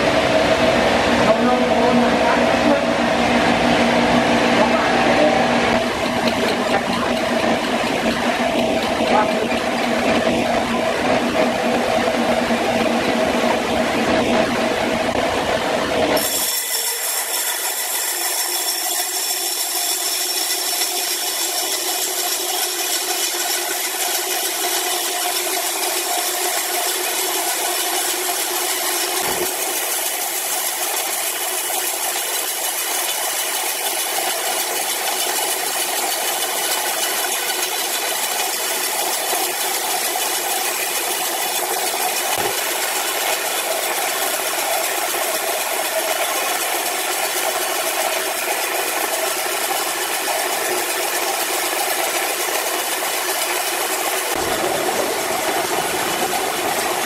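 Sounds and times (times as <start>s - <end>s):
low machine sound: 0.0s - 16.4s
band saw cutting log: 1.2s - 57.0s.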